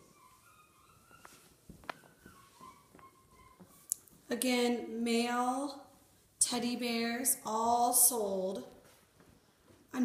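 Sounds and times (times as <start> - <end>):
puppies whimpering: 0.0 - 3.7.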